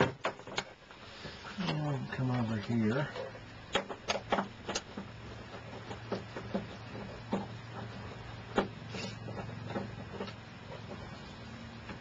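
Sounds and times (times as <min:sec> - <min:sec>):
steady low hum: 0:00.0 - 0:12.0
hand tools clicking and tapping: 0:01.6 - 0:11.1.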